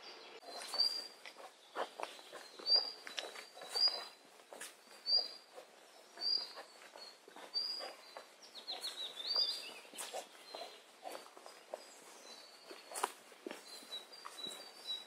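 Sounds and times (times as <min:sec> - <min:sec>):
footfalls on dirt path: 0:00.5 - 0:15.0.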